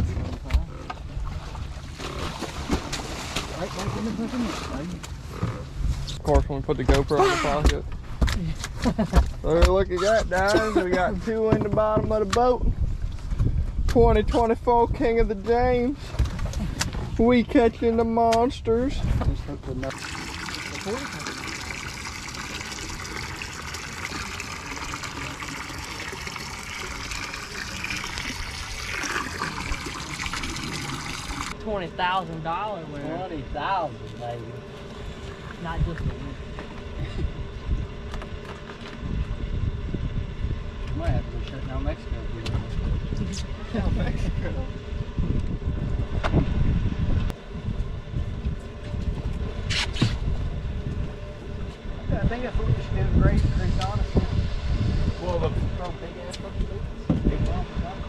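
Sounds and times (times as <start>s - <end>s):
wind buffeting microphone: 11.5s - 17.2s, 39.0s - 41.3s, 42.4s - 58.0s
running splashing water: 19.9s - 31.6s.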